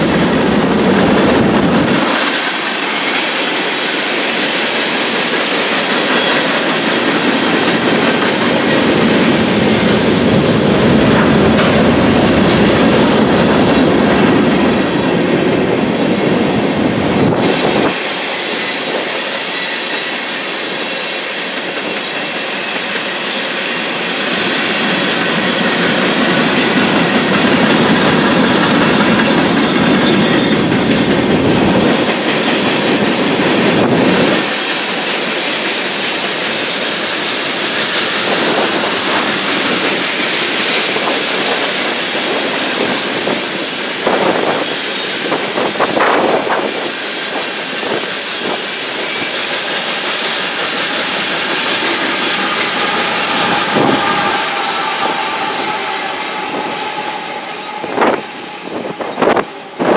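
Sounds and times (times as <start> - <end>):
diesel locomotives passing: 0.0 - 59.9
wheel squeal: 0.3 - 0.7, 1.6 - 3.5, 18.4 - 20.4, 51.6 - 59.2.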